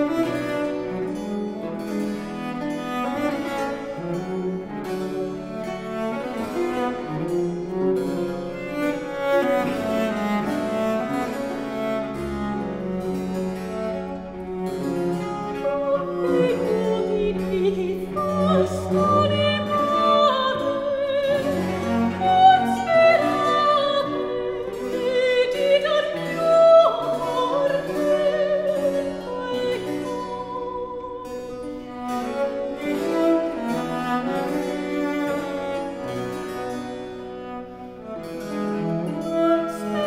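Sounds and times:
cello: 0.0 - 40.0
harp: 0.0 - 40.0
soprano singing with vibrato: 15.6 - 31.5.

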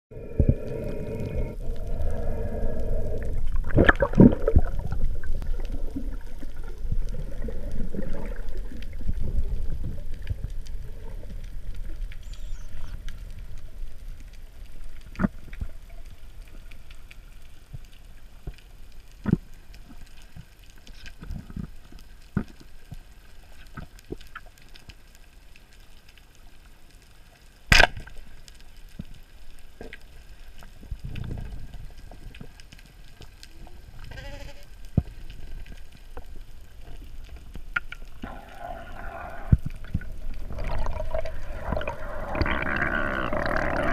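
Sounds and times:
underwater rushing hiss: 0.1 - 9.6, 38.2 - 43.9.

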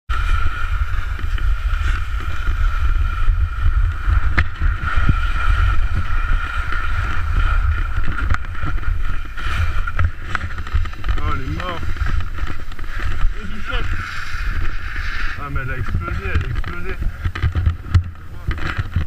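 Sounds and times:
skis scraping snow: 0.1 - 19.0
wind buffeting microphone: 0.1 - 19.0.

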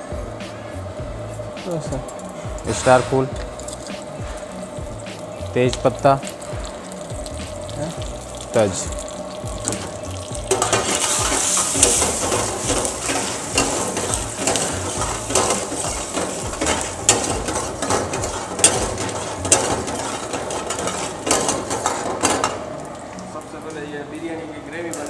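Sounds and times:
spices sizzling in hot oil: 0.0 - 25.0
ladle scraping metal pan: 10.5 - 22.6.

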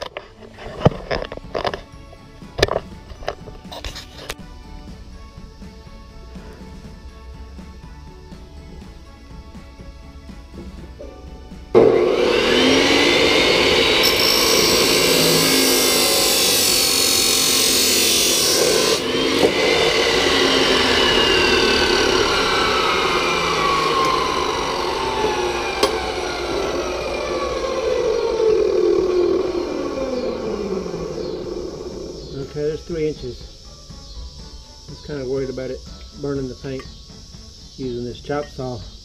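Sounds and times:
saw motor winding down: 11.0 - 33.1
chop saw cutting metal: 11.8 - 32.5.

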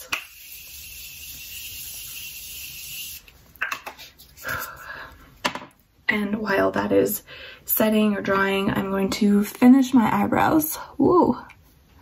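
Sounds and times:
setting spray mist hissing: 0.0 - 3.4.

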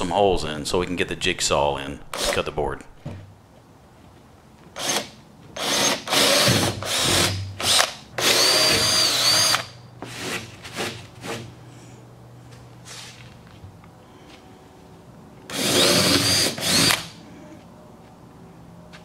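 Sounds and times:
cordless drill boring through board: 4.8 - 9.7, 15.5 - 17.1.

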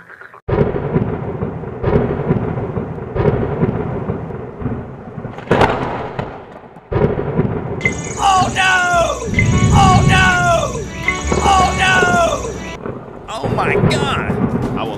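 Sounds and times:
rolling thunder: 0.5 - 8.5, 12.7 - 14.9
steady rain hiss: 7.8 - 14.4.

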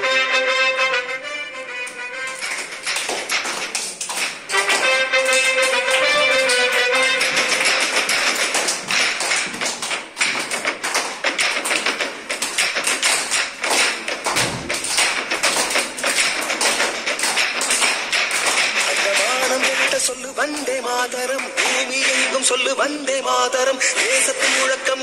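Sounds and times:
fast drum percussion: 2.5 - 22.4.

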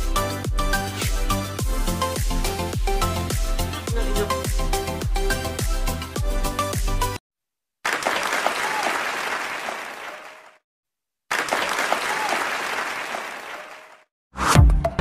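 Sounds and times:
music with heavy beat: 0.0 - 7.2
crowd clapping: 7.8 - 10.6, 11.3 - 14.1.

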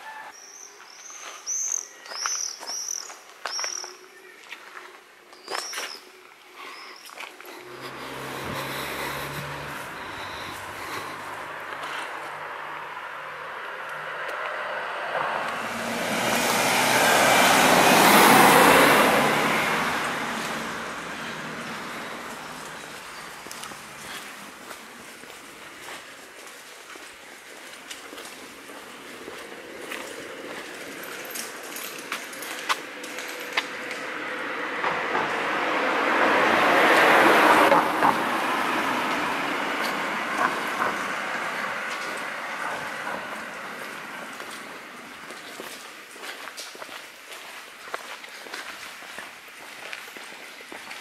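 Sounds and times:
vehicle passing by: 7.5 - 26.3, 27.0 - 45.8.

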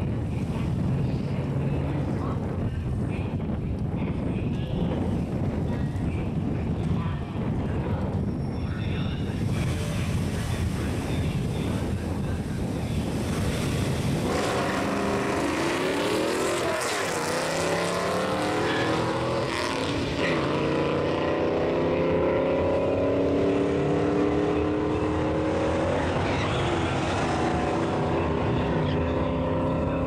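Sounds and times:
car engines revving: 9.2 - 30.0.

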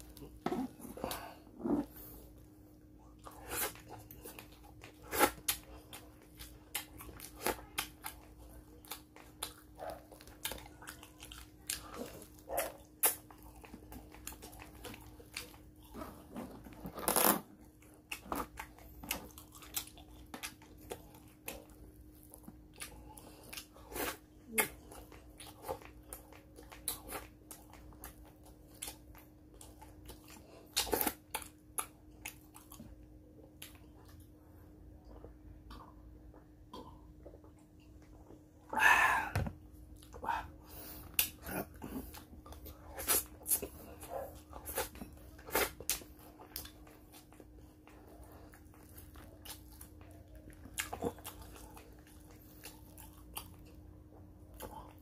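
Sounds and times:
faint steady hum: 0.0 - 55.0
person chewing food: 0.0 - 55.0
lip smacks: 39.3 - 43.8.

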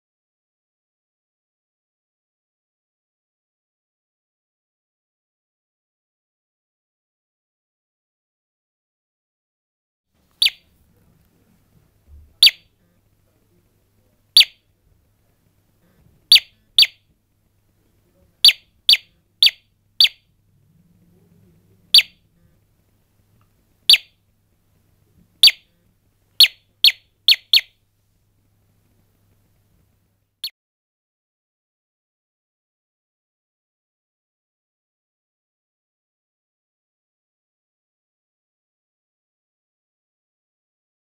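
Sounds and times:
electronic bird-like chirps: 10.4 - 10.7, 12.4 - 12.6, 14.4 - 14.6, 16.3 - 17.0, 18.4 - 20.3, 21.9 - 22.2, 23.9 - 24.2, 25.4 - 25.7, 26.4 - 27.7.

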